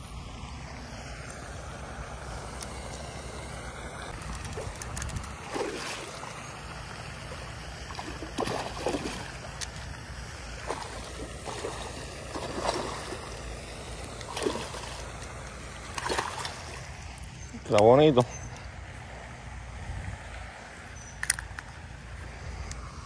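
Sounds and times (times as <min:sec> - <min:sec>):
fish splashing in water: 0:02.9 - 0:17.2
wind rumble on microphone: 0:04.0 - 0:07.3, 0:18.4 - 0:23.0.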